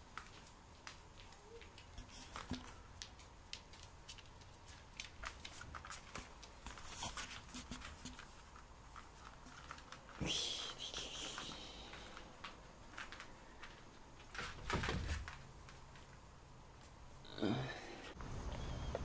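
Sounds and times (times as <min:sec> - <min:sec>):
dog claws clicking on floor: 0:00.1 - 0:10.2.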